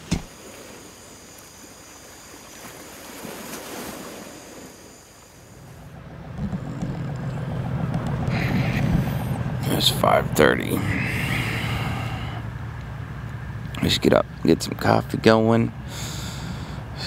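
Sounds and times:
ocean waves washing on shore: 0.0s - 12.7s
wind rumble on microphone: 5.9s - 12.5s.

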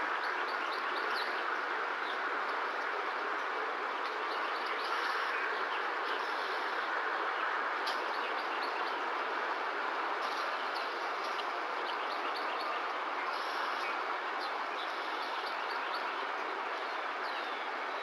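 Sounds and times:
steady hiss: 9.0s - 16.4s.

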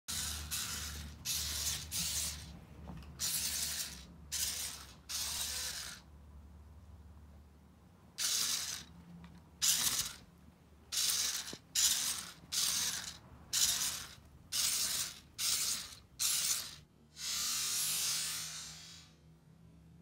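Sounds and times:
toy vehicle motor and gears: 0.1s - 6.1s, 8.2s - 8.9s, 9.6s - 10.3s, 10.9s - 19.2s.

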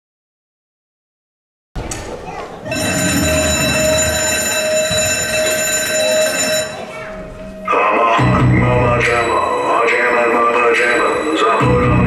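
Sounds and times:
bell alarm clock ringing: 2.7s - 7.1s, 10.8s - 11.8s.

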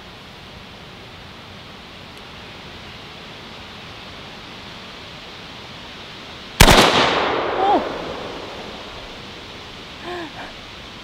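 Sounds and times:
rifle shot with echo: 6.6s - 9.0s
person exclaiming: 7.5s - 8.0s, 10.0s - 10.6s.

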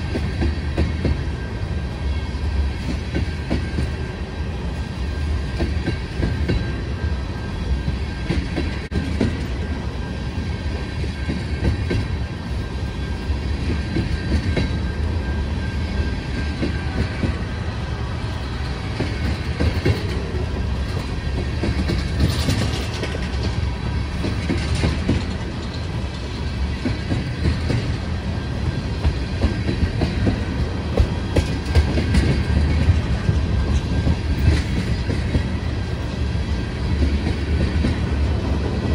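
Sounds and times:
freight train rumbling: 0.0s - 38.9s
wheels clattering over rail joints: 18.4s - 35.6s.

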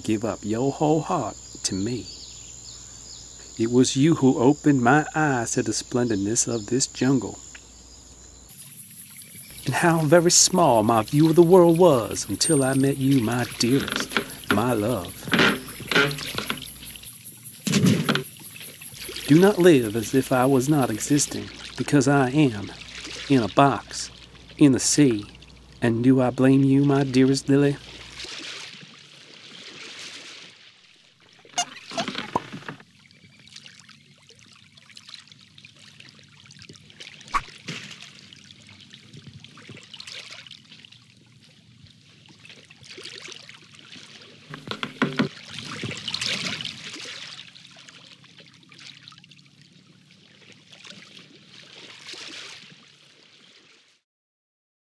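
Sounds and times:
sharp splashes: 9.6s - 25.6s, 26.9s - 32.4s, 37.0s - 38.8s, 45.3s - 49.2s, 50.4s - 53.8s
waves washing in: 18.2s - 25.3s.

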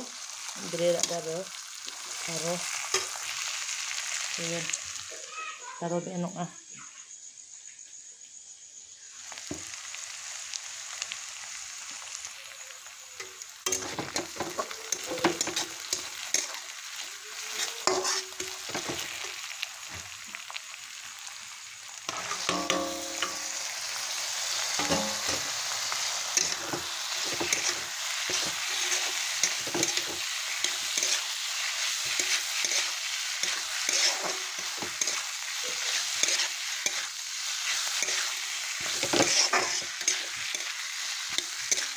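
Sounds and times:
meat sizzling in hot oil: 0.0s - 5.7s, 8.2s - 41.9s
spoon scraping and knocking pan: 13.2s - 16.6s, 17.5s - 20.0s, 22.1s - 23.7s, 24.8s - 25.6s, 26.4s - 41.9s.

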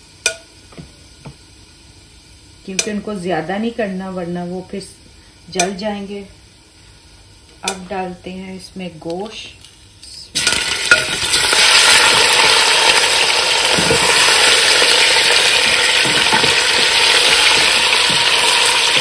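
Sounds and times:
meat sizzling in hot fat: 9.6s - 19.0s
wooden spoon stirring: 13.8s - 19.0s.

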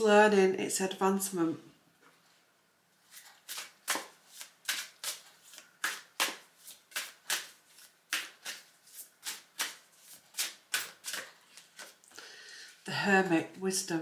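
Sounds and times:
cards being shuffled: 3.1s - 12.0s.

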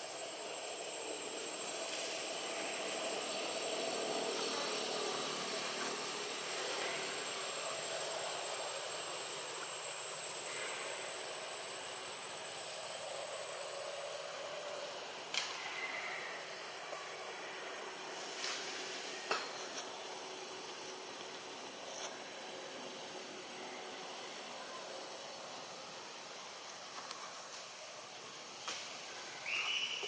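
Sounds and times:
outdoor background hiss: 0.0s - 30.0s.

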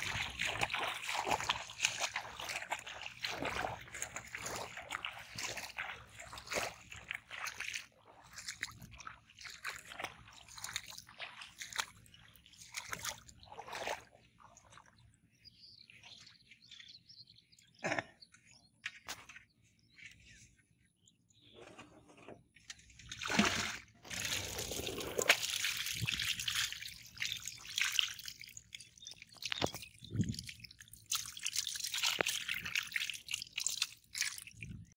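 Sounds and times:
water pouring: 0.0s - 11.9s, 23.0s - 34.9s
shallow water splashing: 0.0s - 16.8s, 22.8s - 34.9s
water trickling and dripping: 0.0s - 17.2s, 24.1s - 34.9s.

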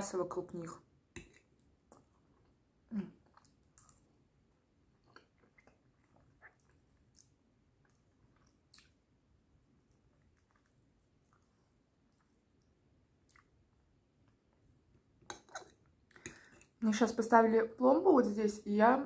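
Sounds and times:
chewing meat: 4.9s - 9.0s, 9.8s - 13.6s
mouth clicks and smacks: 7.9s - 9.0s.

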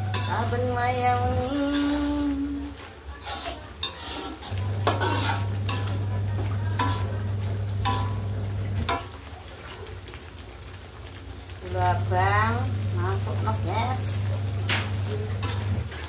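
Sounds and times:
metal spatula scraping wok: 0.0s - 9.1s, 13.2s - 16.0s
sauce sizzling: 0.0s - 16.0s.

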